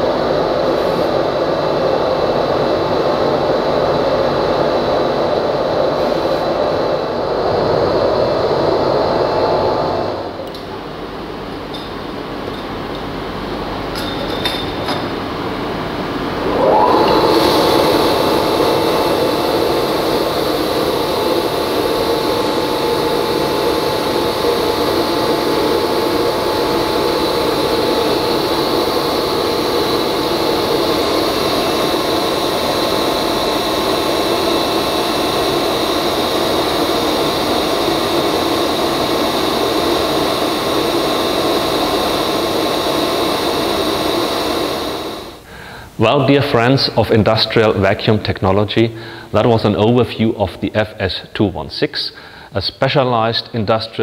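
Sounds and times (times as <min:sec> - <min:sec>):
wet-dry vacuum cleaner running: 0:00.0 - 0:10.6, 0:16.0 - 0:45.9.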